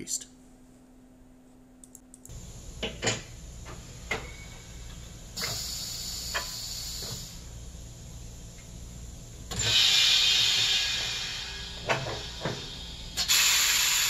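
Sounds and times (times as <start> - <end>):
low steady hum: 0.0 - 6.2
air hissing: 5.3 - 7.5, 9.5 - 14.0.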